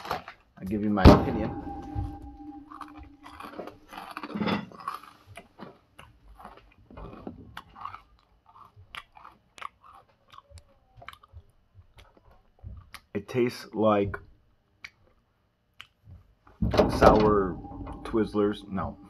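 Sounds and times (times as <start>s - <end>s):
person chewing crunchy cereal: 2.8s - 13.1s.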